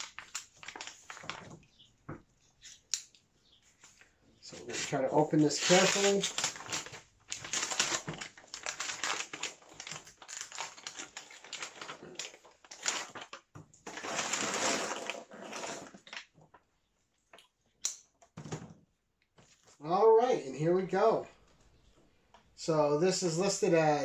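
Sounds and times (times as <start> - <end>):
wrapping crinkling and rustling: 0.0 - 1.9, 3.7 - 16.7.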